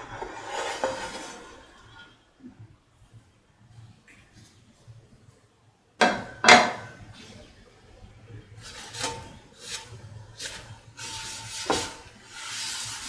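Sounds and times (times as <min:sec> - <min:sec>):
cloth wiping a frying pan: 0:08.6 - 0:13.0.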